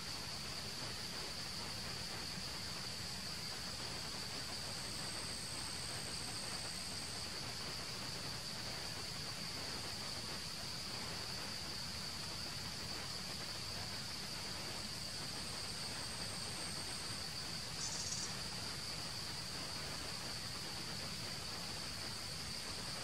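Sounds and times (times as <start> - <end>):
insects droning: 0.0 - 23.0
higher insect buzz: 17.6 - 18.7.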